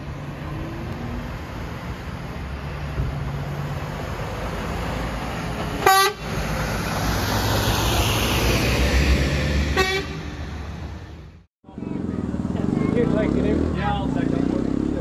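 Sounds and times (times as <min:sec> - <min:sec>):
diesel lorry engine rumble: 0:00.0 - 0:15.0
horn toots: 0:05.8 - 0:06.3, 0:09.7 - 0:10.6.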